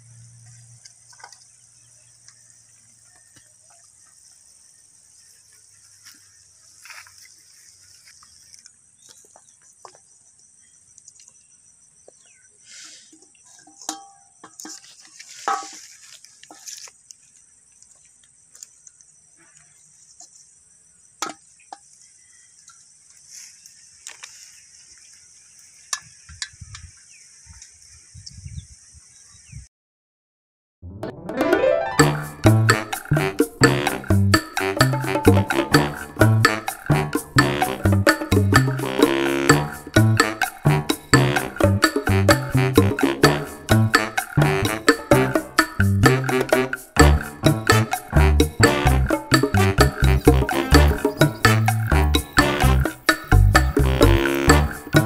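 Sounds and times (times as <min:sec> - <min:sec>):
insect chirring: 0:32.4 - 0:55.0.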